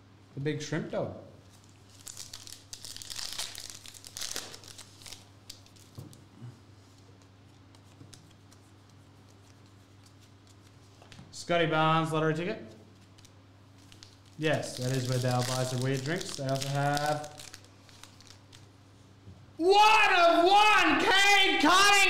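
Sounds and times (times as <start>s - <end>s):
foil pack crinkling and tearing: 1.5s - 6.1s, 13.0s - 18.7s.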